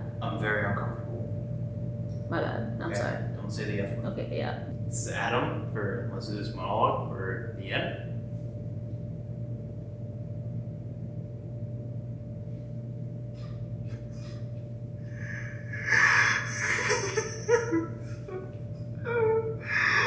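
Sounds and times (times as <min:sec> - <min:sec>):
low room hum: 0:00.0 - 0:20.0
man breathing hard and sobbing: 0:15.1 - 0:18.3.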